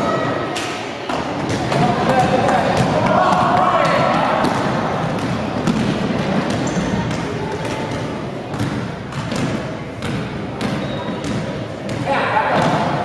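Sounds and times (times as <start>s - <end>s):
basketball bouncing on hardwood: 1.4s - 7.3s, 8.5s - 12.0s.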